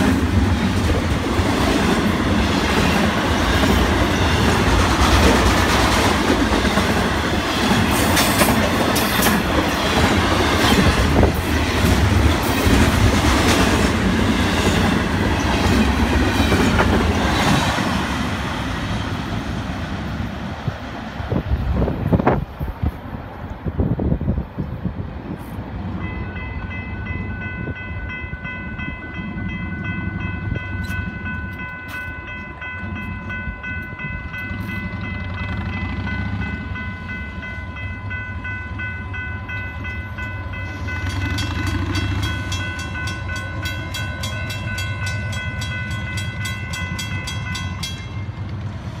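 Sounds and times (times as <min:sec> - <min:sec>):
railroad crossing bell ringing: 0:00.0 - 0:19.4, 0:25.9 - 0:48.8
freight train cars rumbling: 0:00.0 - 0:49.0.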